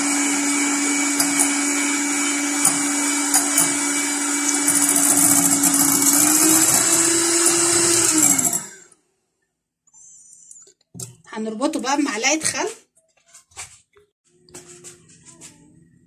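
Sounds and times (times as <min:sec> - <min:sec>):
electric hand mixer running: 0:00.0 - 0:09.0
mixer clicks: 0:01.1 - 0:08.9.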